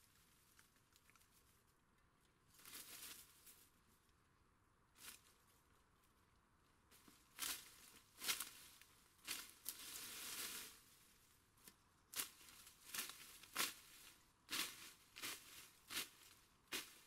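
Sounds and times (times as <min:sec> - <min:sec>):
undergrowth rustling as weeds pulled: 0:02.5 - 0:03.7, 0:06.9 - 0:17.0.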